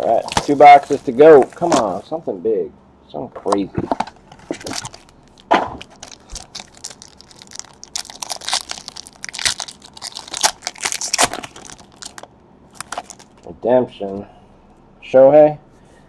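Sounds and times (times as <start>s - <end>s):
foil wrapper crinkling and tearing: 0.0s - 2.0s, 4.4s - 13.5s.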